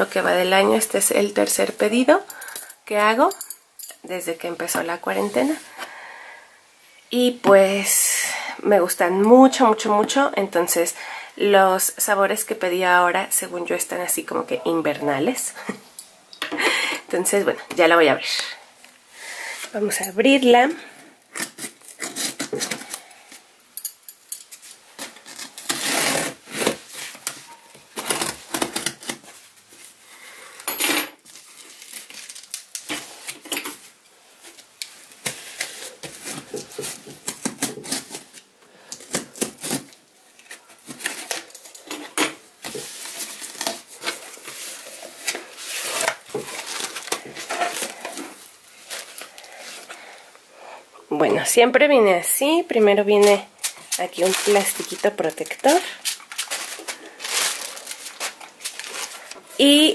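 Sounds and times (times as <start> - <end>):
scissors slicing packing tape: 25.0 - 26.7.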